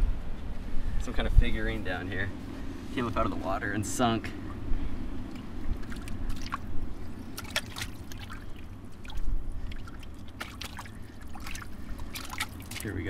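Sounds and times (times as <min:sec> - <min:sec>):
hand sloshing through muddy water: 0:05.2 - 0:13.0
small splashes: 0:05.2 - 0:13.0.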